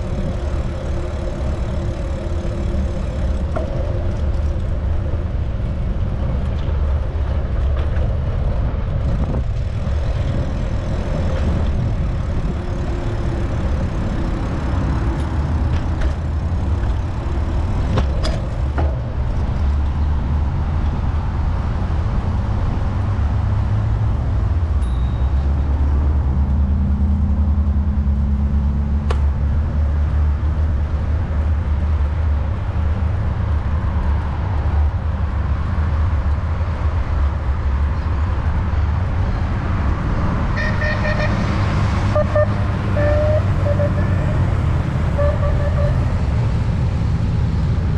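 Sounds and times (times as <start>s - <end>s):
bicycle road noise: 0.0s - 47.9s
passing traffic: 0.0s - 47.9s.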